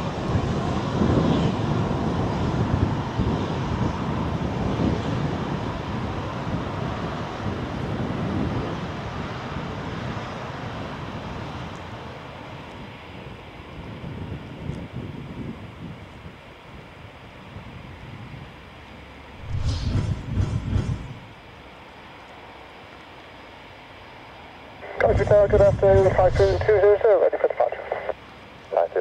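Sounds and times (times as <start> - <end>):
jet engines rushing: 0.0 - 13.1, 19.3 - 22.2, 24.5 - 29.0.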